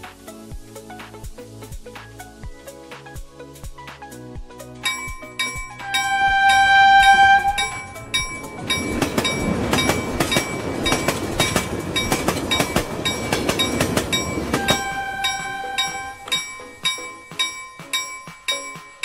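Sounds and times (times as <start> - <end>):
train clickety-clack chugging: 4.8 - 19.0
toy train whistle: 5.8 - 8.5, 14.5 - 16.5.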